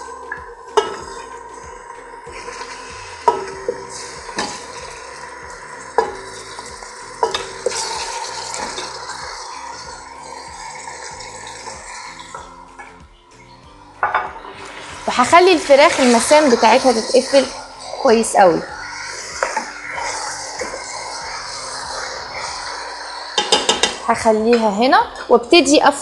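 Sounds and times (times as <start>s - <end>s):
chicken sizzling in oil: 0.0s - 24.4s
spoon clinking on metal pot: 7.2s - 7.9s, 23.4s - 24.7s.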